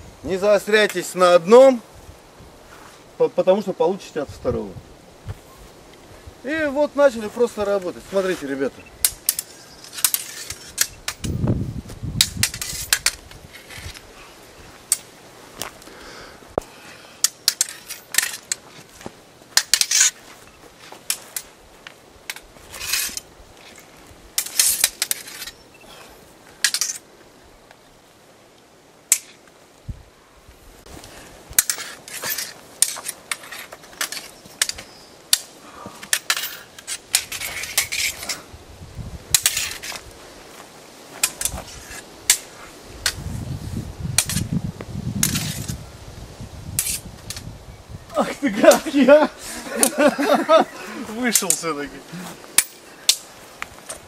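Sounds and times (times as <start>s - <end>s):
wooden sticks clacking: 9.0s - 11.4s, 16.6s - 21.6s, 22.3s - 25.6s, 26.6s - 27.1s, 29.1s - 29.4s, 31.6s - 38.4s, 41.1s - 43.2s, 48.1s - 54.0s.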